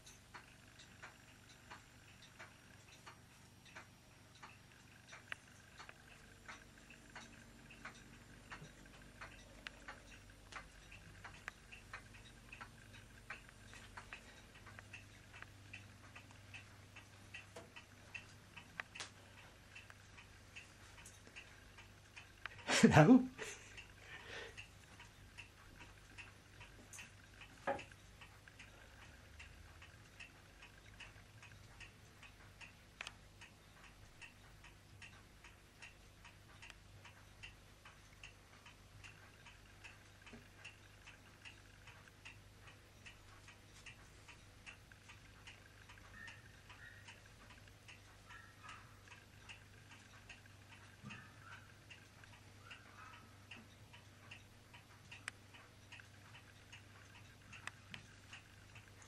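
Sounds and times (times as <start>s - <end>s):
clock ticking: 0.0s - 59.0s
low steady hum: 0.0s - 59.0s.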